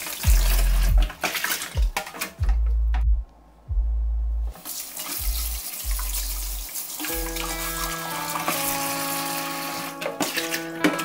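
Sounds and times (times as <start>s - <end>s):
tap water running into basin: 0.0s - 2.4s, 4.5s - 11.0s
deep bass background music: 0.2s - 1.2s, 1.8s - 4.6s, 5.2s - 9.8s.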